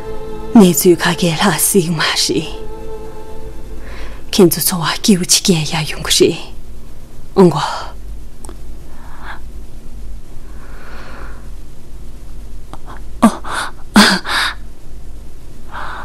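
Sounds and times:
steady low hum: 0.0s - 16.0s
person gasping breaths: 10.5s - 11.5s.

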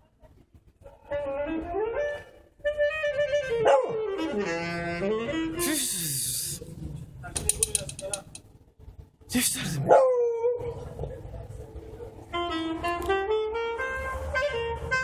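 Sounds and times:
saxophone playing held notes: 2.6s - 6.5s, 12.3s - 15.0s.

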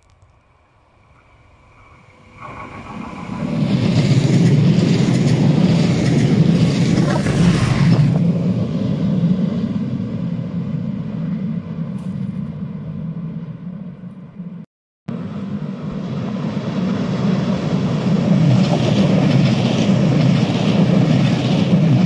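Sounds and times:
train low hum: 0.0s - 22.0s
train wheels on rails: 1.0s - 10.0s, 15.3s - 22.0s.

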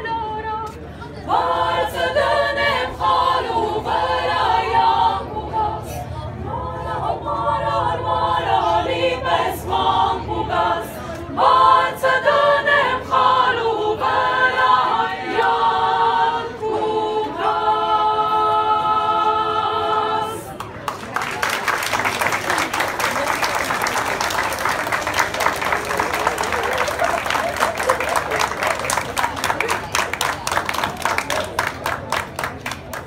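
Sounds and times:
choir singing a cappella: 0.0s - 20.6s
audience applauding: 20.8s - 33.0s.

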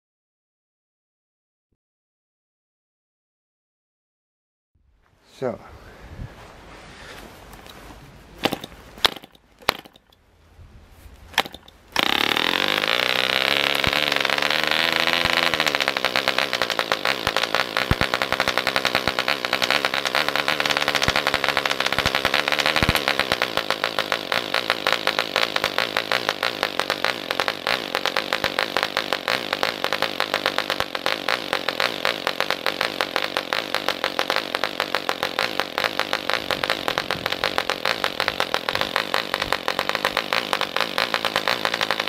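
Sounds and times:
model aircraft engine running: 8.4s - 10.1s, 11.4s - 42.0s
propeller flicked clicks: 8.4s - 10.2s, 11.3s - 42.0s.

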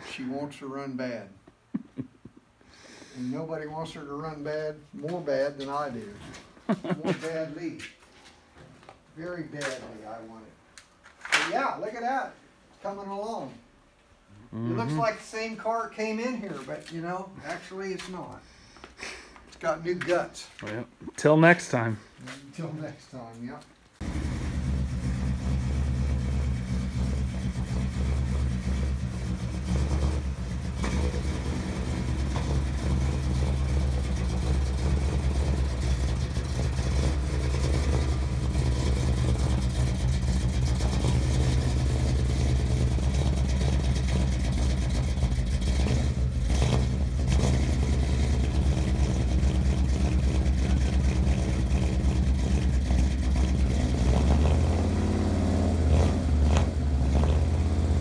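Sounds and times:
car engine running: 24.0s - 58.0s.

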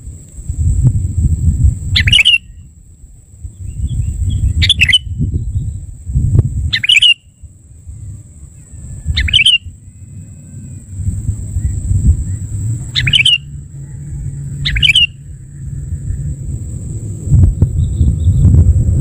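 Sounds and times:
loud low rumble: 0.0s - 6.7s, 7.4s - 19.0s
bird chirpy calls: 1.9s - 2.7s, 3.6s - 5.8s, 6.7s - 7.4s, 8.5s - 16.3s, 17.6s - 18.6s.

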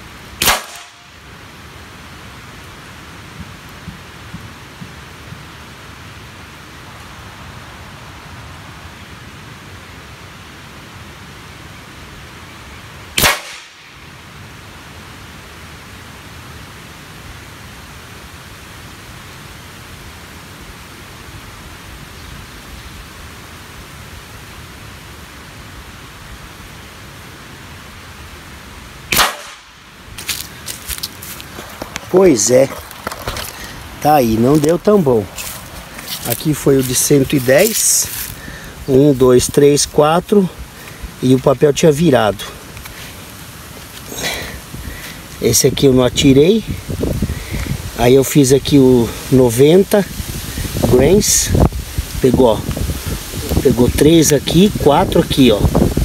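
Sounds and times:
steady background hiss: 0.0s - 56.0s
air rifle shot: 0.4s - 1.1s, 13.2s - 13.9s, 29.1s - 29.8s.

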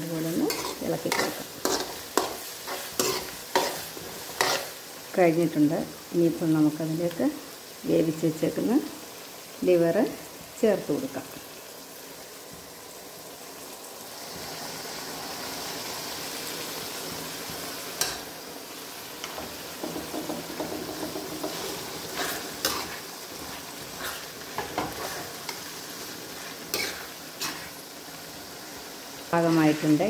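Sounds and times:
liver sizzling in a pan: 0.0s - 30.0s
metal spoon scraping a pan: 0.2s - 4.8s, 19.2s - 27.9s, 29.4s - 30.0s.

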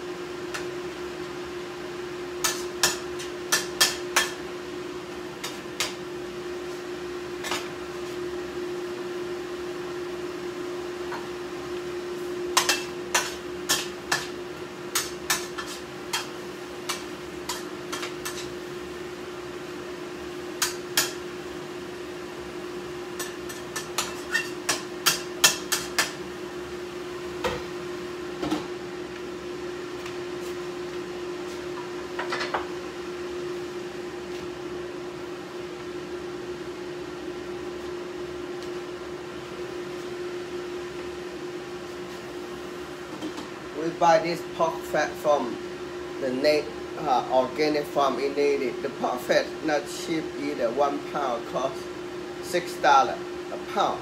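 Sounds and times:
steady machine hum: 0.0s - 54.0s
utensils and cookware clinking: 23.2s - 26.2s.

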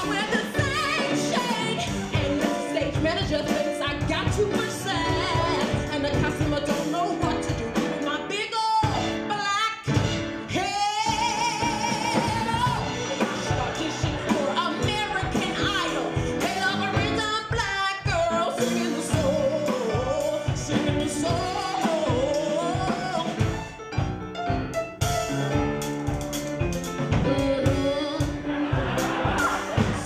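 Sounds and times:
woman singing gospel-style: 0.0s - 9.9s, 10.5s - 23.4s
live band with drum kit: 0.0s - 30.0s.

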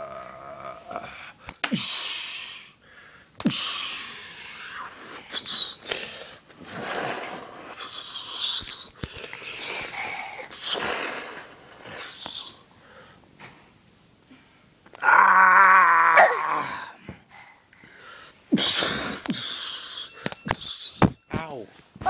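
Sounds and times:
person wheezing hisses: 16.2s - 21.1s.

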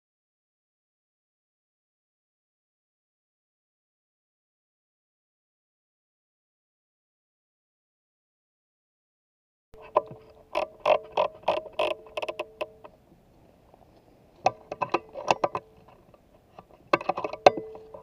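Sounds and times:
faint steady hum: 9.8s - 18.0s
rifle handling clicks and knocks: 14.4s - 18.0s.

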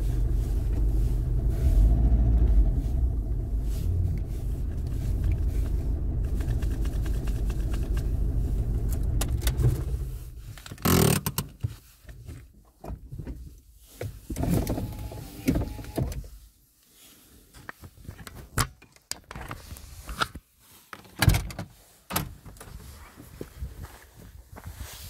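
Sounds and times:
handling clicks and knocks in car: 3.9s - 16.3s, 21.0s - 22.8s.

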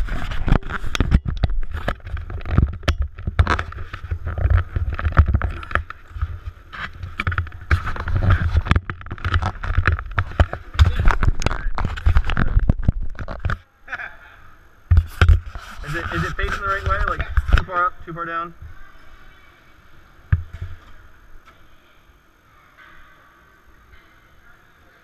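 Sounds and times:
camera handling knocks and scrapes: 14.9s - 17.6s.

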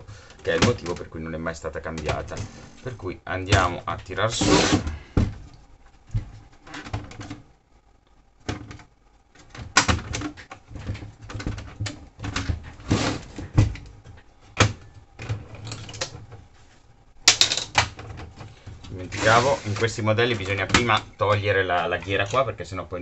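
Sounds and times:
clicks and knocks of plastic parts: 0.1s - 1.2s, 1.8s - 2.4s, 8.4s - 16.4s, 17.2s - 19.0s, 19.8s - 22.6s.

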